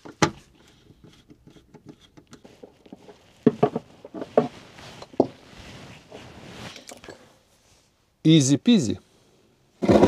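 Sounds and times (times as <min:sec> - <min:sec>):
rustling: 0:02.4 - 0:08.0.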